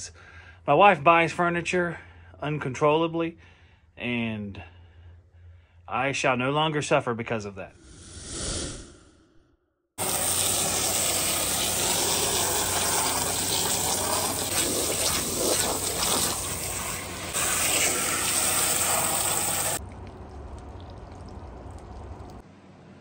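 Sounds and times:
hose water spraying: 0:10.0 - 0:19.8.

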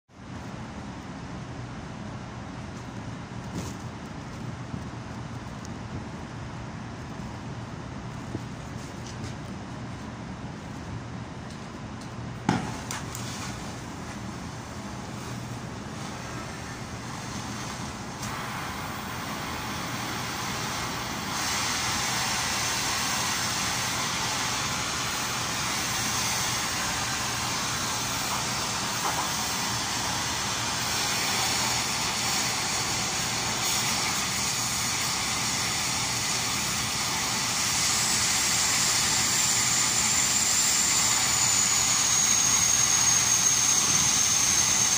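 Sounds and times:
gas torch igniting pop: 0:12.5 - 0:13.4, 0:29.0 - 0:29.5
torch flame hissing: 0:12.5 - 0:44.9.

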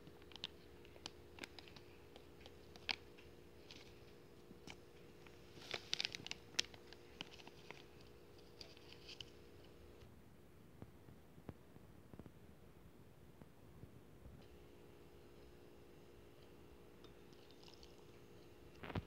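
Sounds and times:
soft clicks and crinkles: 0:00.0 - 0:10.1
faint steady hum: 0:00.0 - 0:19.0.

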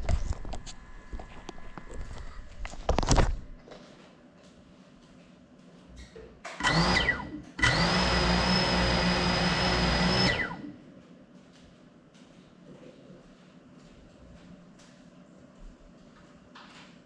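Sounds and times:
drone motors whining: 0:06.6 - 0:10.7.

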